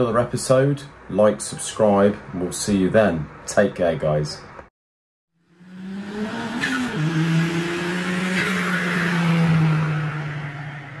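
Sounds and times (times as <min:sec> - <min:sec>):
car engine at high revs: 0:05.4 - 0:11.0.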